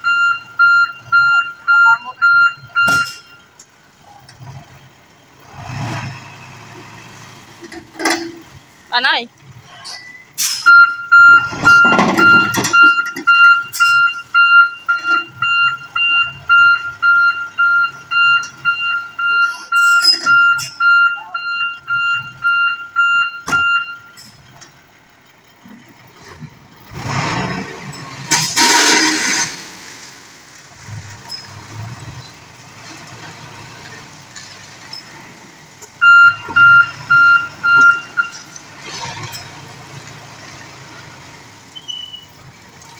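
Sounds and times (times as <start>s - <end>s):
truck reversing alarm beeping: 0.0s - 3.6s, 9.9s - 25.5s, 36.0s - 39.6s
rush of truck noise: 0.0s - 42.9s.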